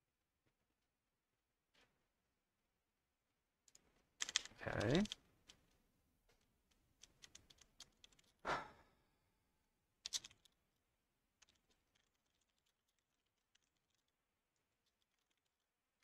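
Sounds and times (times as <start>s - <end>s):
typing on computer keyboard: 3.7s - 5.7s, 7.0s - 8.4s, 10.0s - 10.6s.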